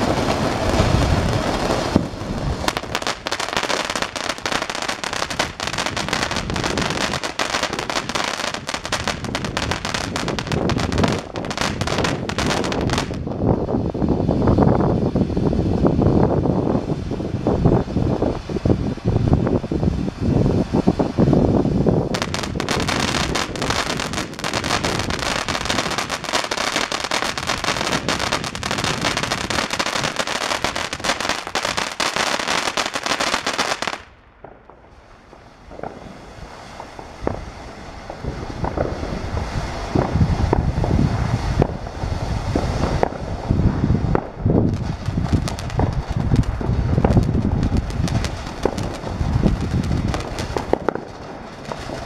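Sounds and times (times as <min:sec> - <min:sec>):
firework fountain spraying sparks: 0:00.0 - 0:52.0.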